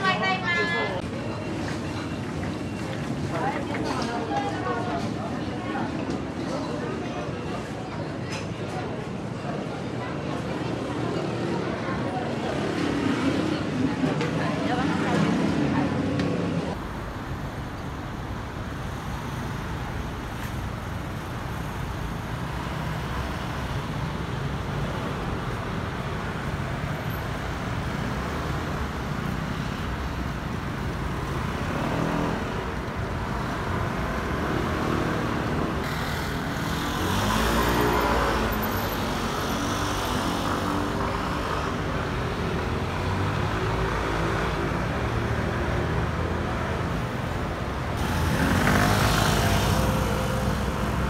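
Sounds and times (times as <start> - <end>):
vehicles passing close: 0.0 - 51.0
hum of passing cars: 10.4 - 51.0.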